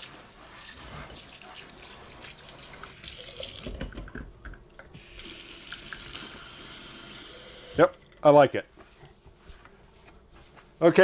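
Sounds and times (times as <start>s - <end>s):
water running into metal sink: 5.0s - 8.2s.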